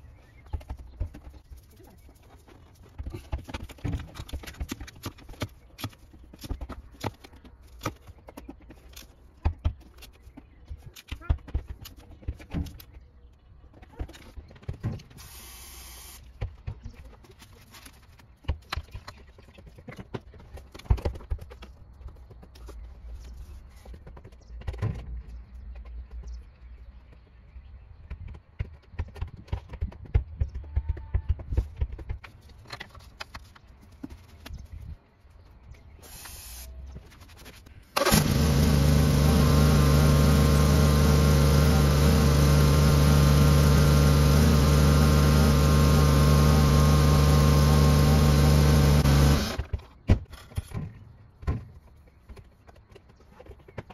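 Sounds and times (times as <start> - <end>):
car engine starting and idling: 38.0 - 49.6.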